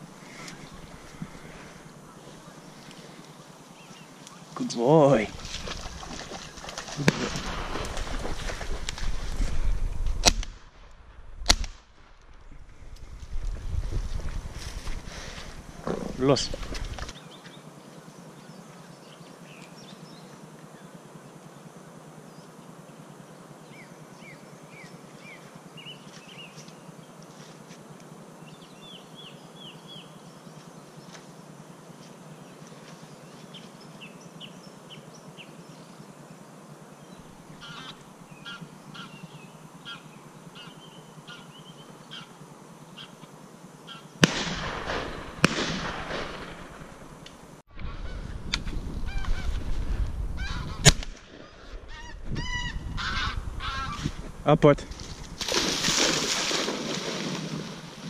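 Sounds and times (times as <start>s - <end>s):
faint outdoor hiss: 0.0s - 58.0s
high falling bird calls: 37.0s - 42.4s, 47.8s - 54.3s
shotgun shots: 44.2s - 47.1s.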